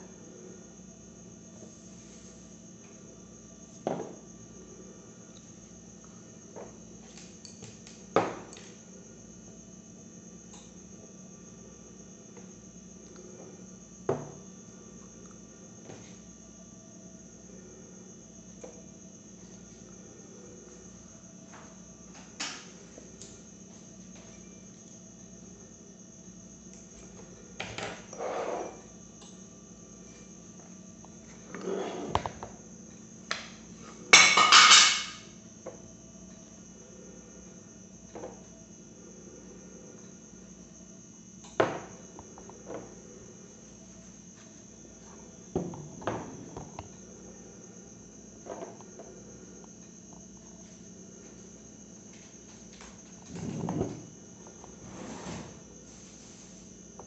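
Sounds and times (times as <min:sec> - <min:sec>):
steady low hum: 0:00.0 - 0:57.0
loud clattering scrape: 0:54.8 - 0:55.6.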